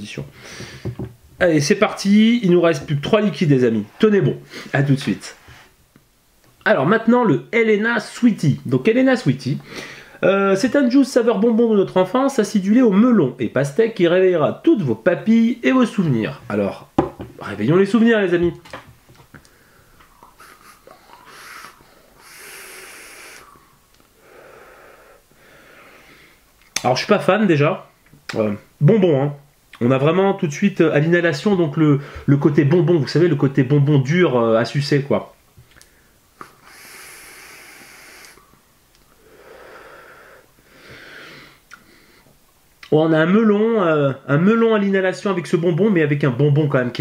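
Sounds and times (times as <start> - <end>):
person vaping breaths: 0.4 - 1.0, 9.7 - 10.2, 19.4 - 26.4, 35.8 - 42.3
air hissing through atomiser: 20.2 - 26.4, 36.4 - 42.3.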